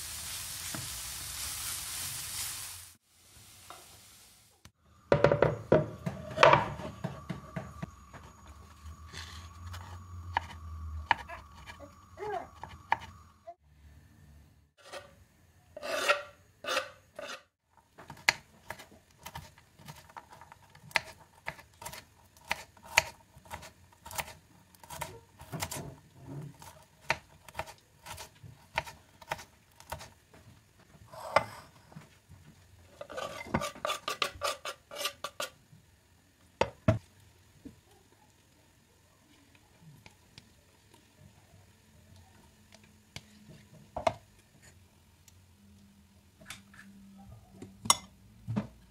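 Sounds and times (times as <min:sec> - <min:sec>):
knife scraping board: 0:14.8 - 0:15.2, 0:15.8 - 0:17.5, 0:32.9 - 0:35.6.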